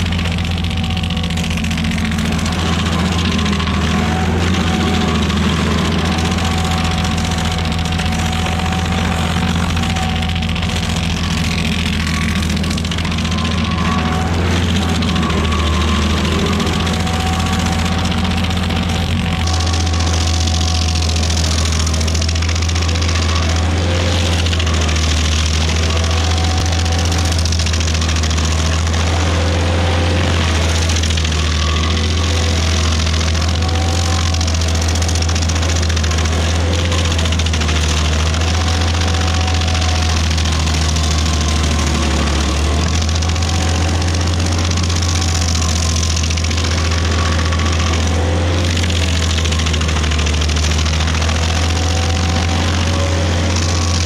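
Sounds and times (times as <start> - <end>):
stump grinder grinding: 0.0 - 54.0.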